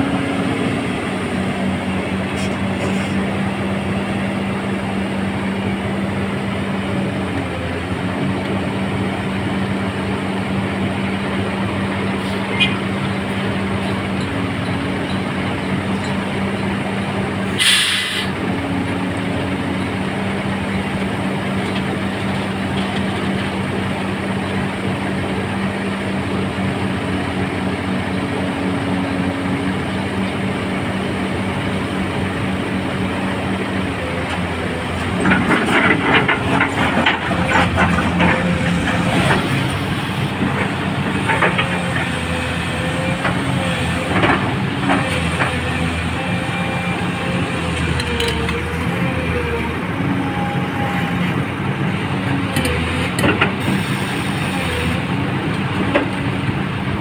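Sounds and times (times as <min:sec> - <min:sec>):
excavator diesel engine running: 0:00.0 - 0:57.0
short hiss: 0:17.6 - 0:18.3
metallic clanking and rattling: 0:35.0 - 0:39.7.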